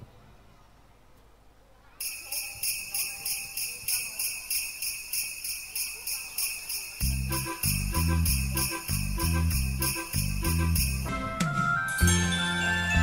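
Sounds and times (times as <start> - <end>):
jingle bells shaking: 2.0 - 11.3, 11.9 - 13.0
bass line and backing music: 7.0 - 13.0.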